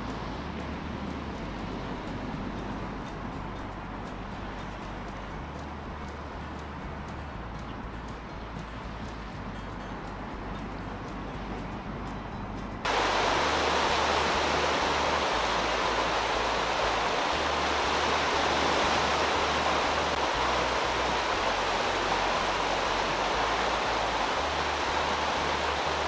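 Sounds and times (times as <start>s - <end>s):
wind and water rushing: 0.0s - 26.0s
low rumble: 12.8s - 26.0s.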